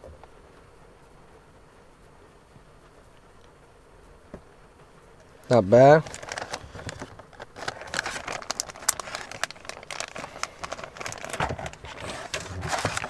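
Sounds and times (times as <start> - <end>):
plastic packaging crinkling: 5.5 - 13.0.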